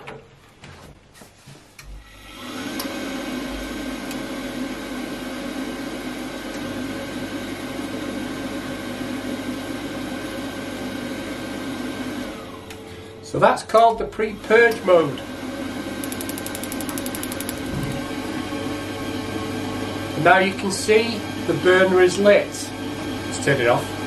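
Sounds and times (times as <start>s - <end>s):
boiler fan spinning: 2.3s - 24.0s
pump humming: 14.2s - 24.0s.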